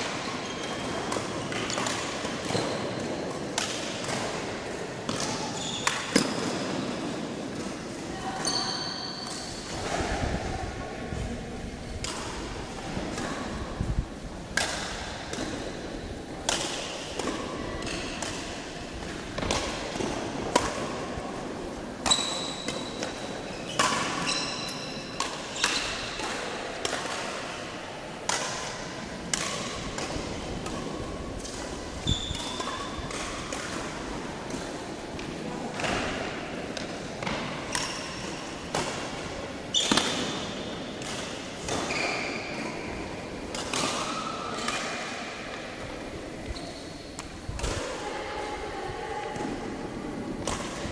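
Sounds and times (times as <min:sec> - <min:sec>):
shoes squeaking on court: 0:00.1 - 0:03.3, 0:05.3 - 0:06.9, 0:08.4 - 0:09.7, 0:22.0 - 0:26.2, 0:32.0 - 0:33.0, 0:39.7 - 0:40.6, 0:41.8 - 0:43.0, 0:46.4 - 0:47.3
racket striking shuttlecock: 0:14.5 - 0:21.0, 0:25.1 - 0:27.6, 0:28.3 - 0:46.2, 0:50.4 - 0:50.9.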